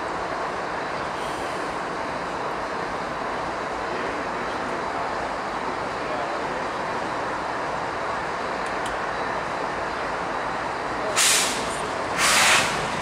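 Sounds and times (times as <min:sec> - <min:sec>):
freight train cars rolling: 0:00.0 - 0:13.0
loud hiss: 0:11.2 - 0:13.0.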